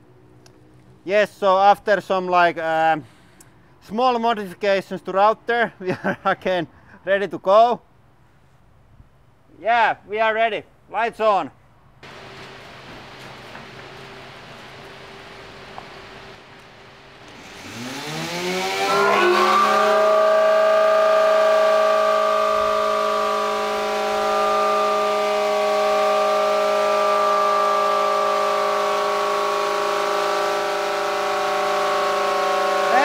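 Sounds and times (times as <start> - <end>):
electric router motor spinning up: 12.1 - 33.0.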